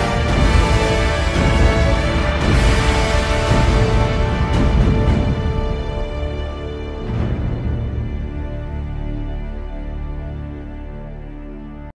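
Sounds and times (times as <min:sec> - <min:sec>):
music of sustained tones: 0:00.0 - 0:11.9.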